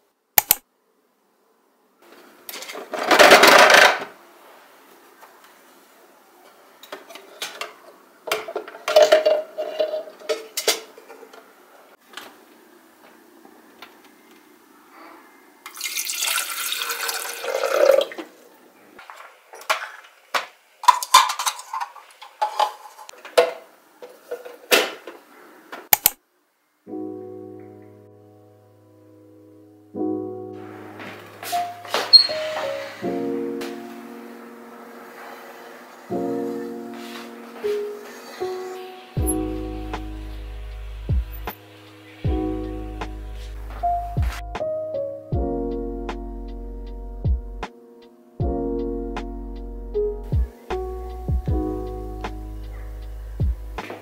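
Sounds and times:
water pouring into tank: 15.7 - 18.2.

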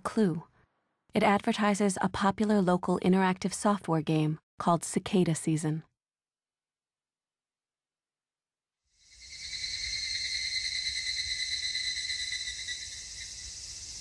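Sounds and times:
cicadas droning: 9.0 - 14.0.

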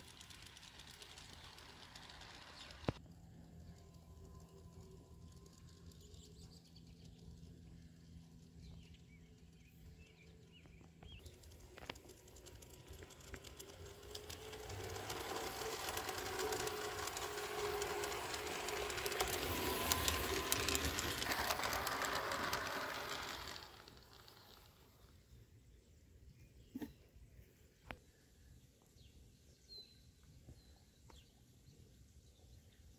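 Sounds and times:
model train motor humming: 0.0 - 7.4, 11.2 - 25.3
wheels clicking over rails: 0.0 - 25.3.

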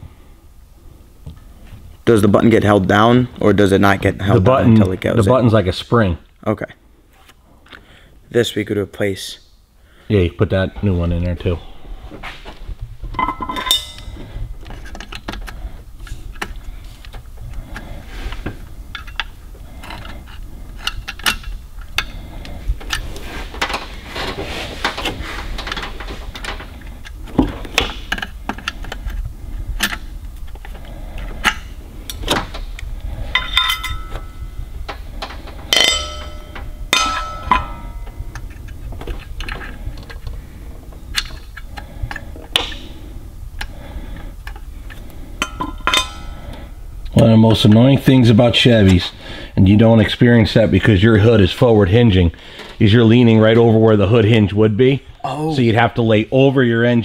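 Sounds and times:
ringing metallic clinks: 13.2 - 14.2, 33.4 - 34.6, 35.7 - 38.3
plastic parts clicking and rattling: 14.6 - 17.9, 18.9 - 22.1.

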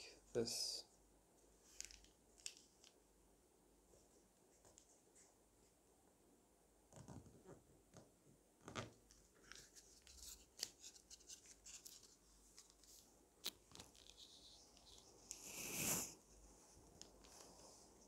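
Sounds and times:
paper crinkling while folded: 9.3 - 15.4.

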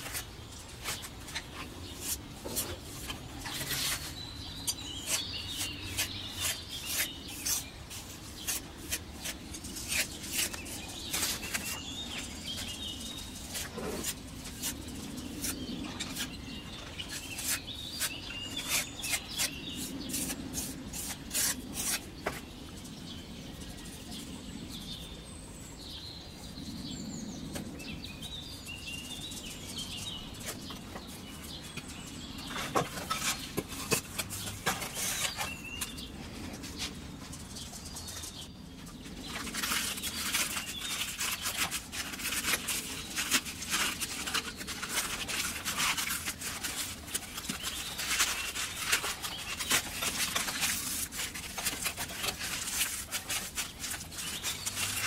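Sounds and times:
metal spatula scraping mortar: 0.0 - 22.1, 32.7 - 35.9
birds chirping: 0.0 - 55.0.

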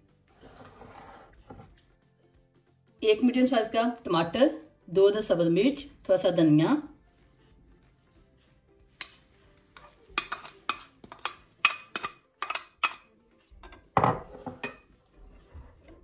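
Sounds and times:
spatula knocking against bowls: 9.8 - 14.8.

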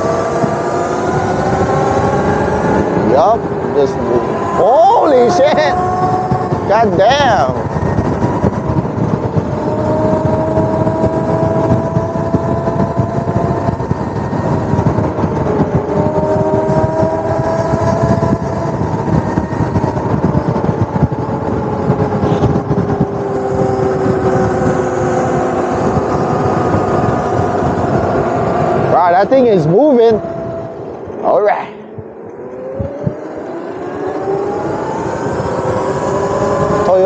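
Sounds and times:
electric motor whine: 0.0 - 37.0
wind and road noise: 0.0 - 37.0.

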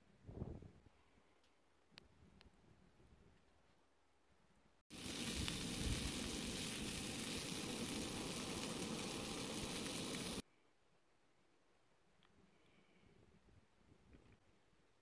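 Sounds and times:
sausages sizzling in a skillet: 4.9 - 10.4.

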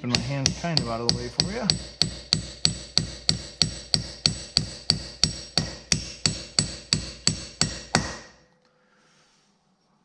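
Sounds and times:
hammer tapping on metal: 0.0 - 8.4.

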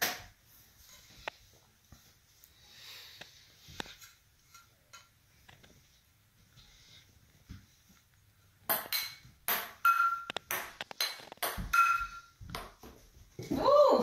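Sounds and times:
ping-pong ball clicks and pings: 8.7 - 12.8.

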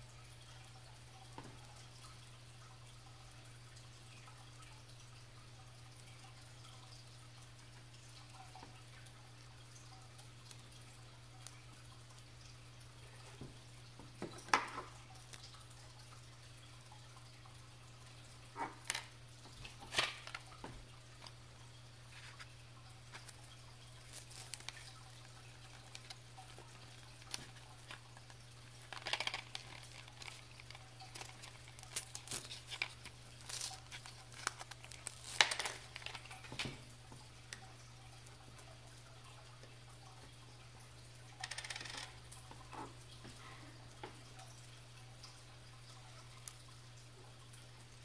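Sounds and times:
plastic and foil pack crinkling: 18.6 - 20.5, 23.1 - 36.6
small parts clicking on wooden table: 41.4 - 42.1.

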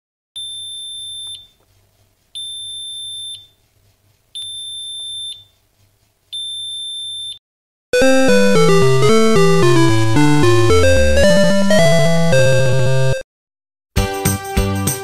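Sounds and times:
electronic alarm beeping: 0.4 - 1.6, 2.4 - 3.5, 4.4 - 5.5, 6.4 - 7.4.

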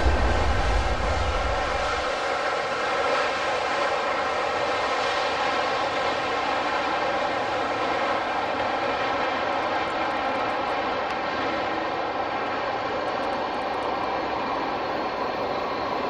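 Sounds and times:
jet engines whining: 0.0 - 2.8.

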